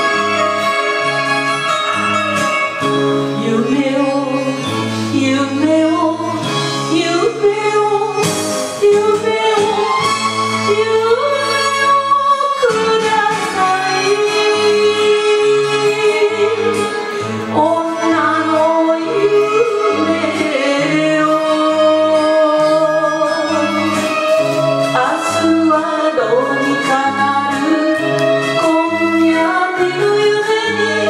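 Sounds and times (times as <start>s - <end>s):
orchestral backing: 0.0s - 31.0s
woman singing: 2.4s - 31.0s.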